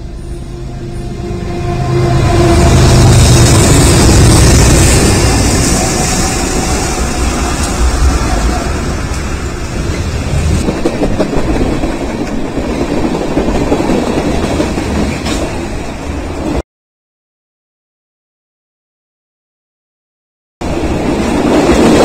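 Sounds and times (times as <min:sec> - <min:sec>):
diesel locomotives rumbling: 0:00.0 - 0:16.6
train cars clattering over rails: 0:02.4 - 0:16.2.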